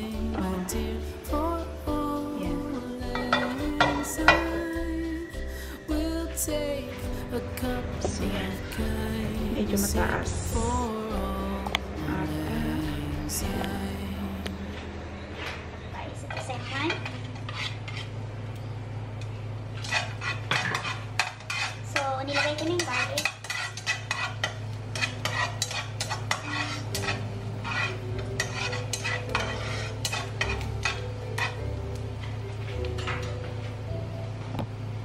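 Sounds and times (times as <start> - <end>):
utensil scraping a frying pan: 16.2 - 18.2, 19.7 - 31.6.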